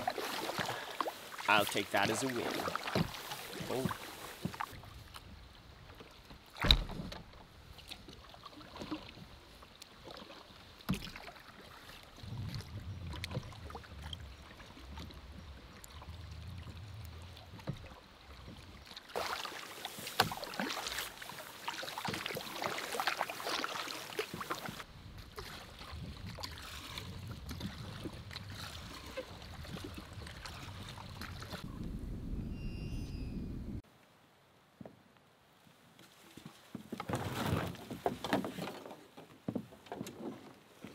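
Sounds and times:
paddle strokes splashing water: 0:00.0 - 0:31.9
wind buffeting microphone: 0:12.2 - 0:17.6, 0:24.9 - 0:33.8.

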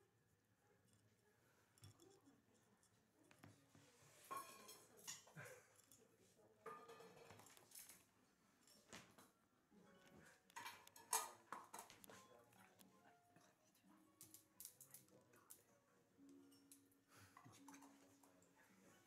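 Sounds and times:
faint clicks and taps: 0:01.8 - 0:04.4, 0:10.0 - 0:18.6.

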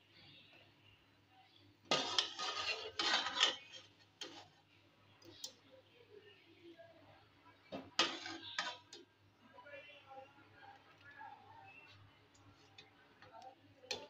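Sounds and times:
metal ladle scraping pan: 0:01.9 - 0:04.6, 0:07.8 - 0:09.1.

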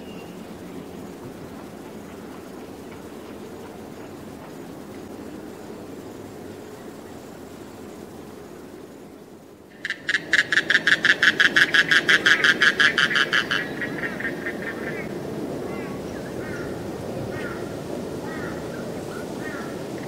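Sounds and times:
faint chirps: 0:00.0 - 0:10.2
low background noise: 0:00.0 - 0:20.0
rapid rattling animal call: 0:09.7 - 0:20.0.

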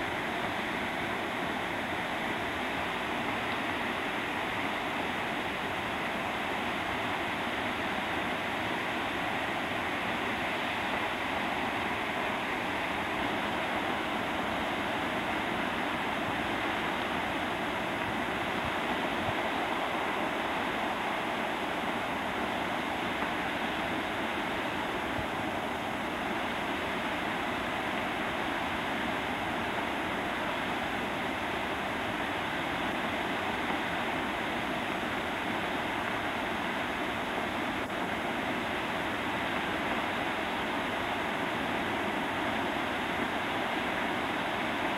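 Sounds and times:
water jetting into river: 0:00.0 - 0:44.9.

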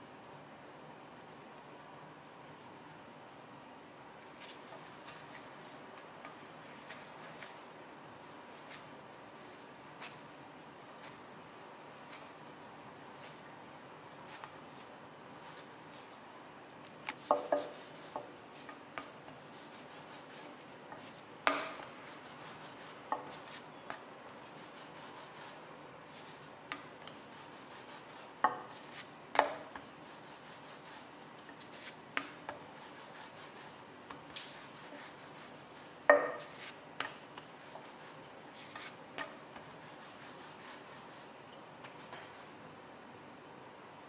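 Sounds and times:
rolling pin rubbing over dough: 0:17.1 - 0:23.7, 0:27.1 - 0:33.8, 0:34.4 - 0:36.8, 0:37.4 - 0:41.6.

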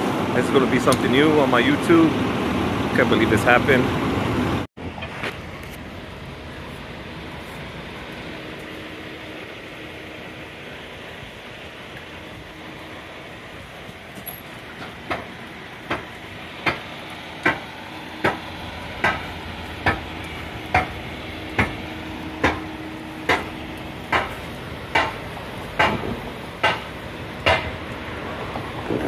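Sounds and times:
continuous hiss: 0:00.0 - 0:29.0
sharp knocks: 0:22.4 - 0:22.7, 0:23.3 - 0:23.5, 0:24.1 - 0:25.2, 0:25.8 - 0:27.8.

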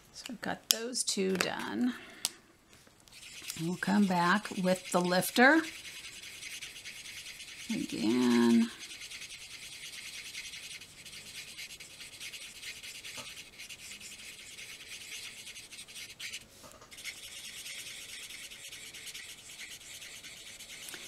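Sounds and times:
marker tip scrubbing on cardstock: 0:03.1 - 0:21.0.

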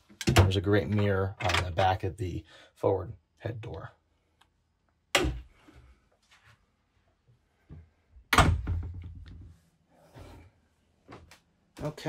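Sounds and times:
door thud: 0:08.3 - 0:09.3.

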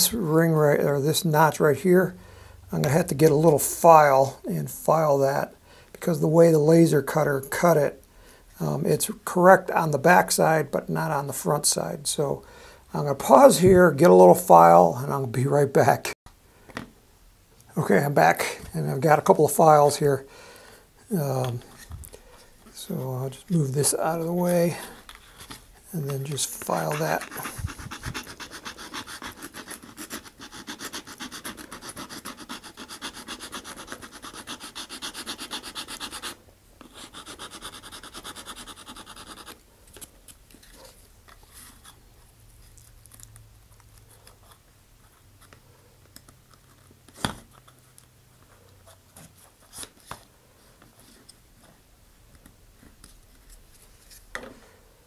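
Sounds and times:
parts being handled: 0:21.4 - 0:28.4
hand file rasping: 0:26.3 - 0:39.6.

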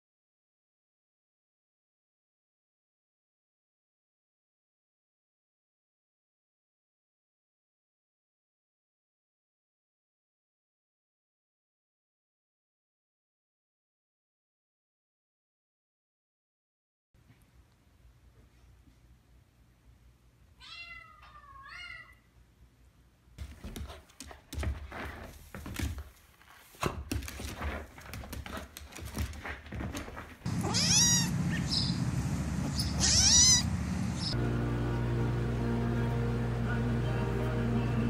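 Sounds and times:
kitten mewing: 0:30.5 - 0:31.8, 0:32.8 - 0:33.7.

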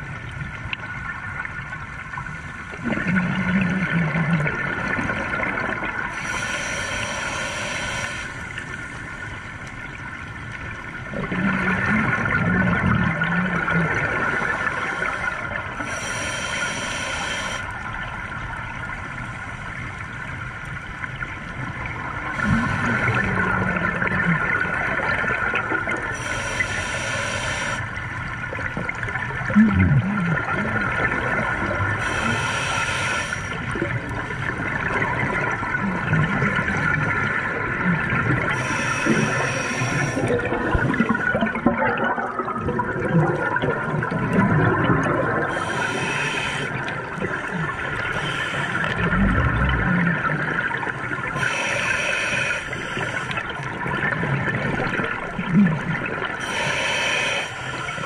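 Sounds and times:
air bubbling from regulator underwater: 0:02.7 - 0:06.6, 0:11.1 - 0:17.6, 0:28.6 - 0:57.2
steady hum: 0:06.0 - 0:09.8, 0:22.2 - 0:28.1, 0:37.9 - 0:42.2, 0:44.6 - 0:53.5.

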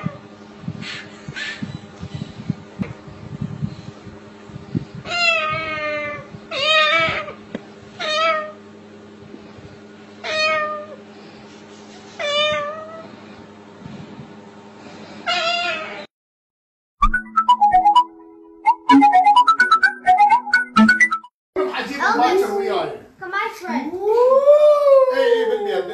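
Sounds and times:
cockatoo imitating cat meows: 0:05.1 - 0:07.4.

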